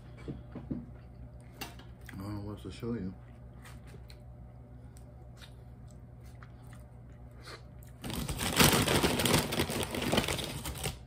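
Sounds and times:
plastic chip bag crinkling: 7.9s - 11.0s.

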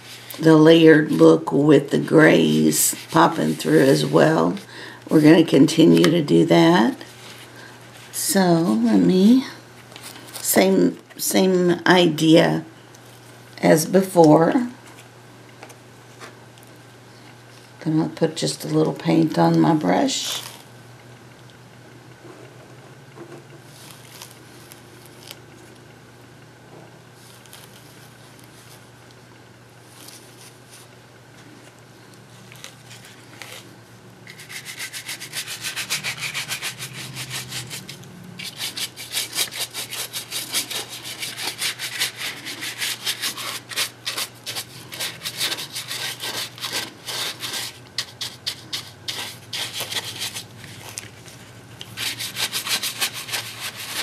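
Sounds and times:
low steady hum: 0.0s - 54.0s
stiff brush scratching: 2.1s - 4.6s, 34.3s - 54.0s.

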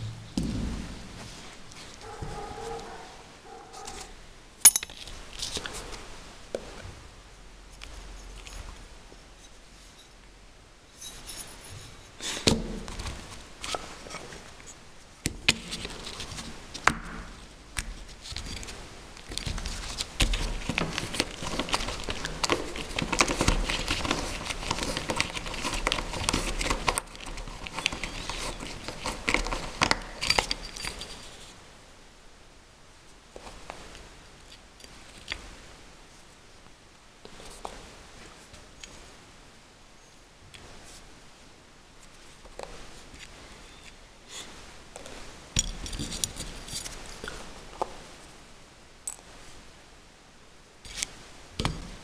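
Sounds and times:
small parts clicking and knocking: 3.8s - 5.8s, 17.8s - 31.5s.

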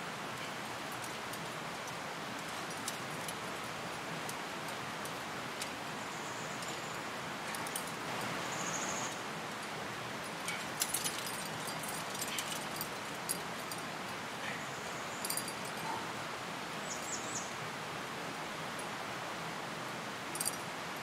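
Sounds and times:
outdoor background hiss: 0.0s - 21.0s
climbing gear clicks and jingles: 0.4s - 5.7s, 6.5s - 8.0s, 9.6s - 14.0s, 15.2s - 16.0s.

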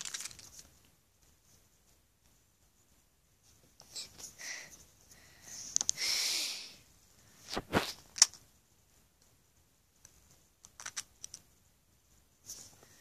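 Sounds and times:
rustling of plush toys and bedding: 0.0s - 5.9s.

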